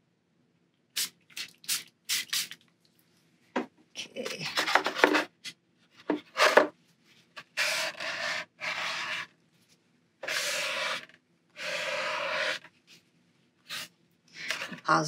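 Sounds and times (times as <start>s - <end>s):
spray bottle hissing: 1.0s - 2.6s, 13.7s - 13.9s.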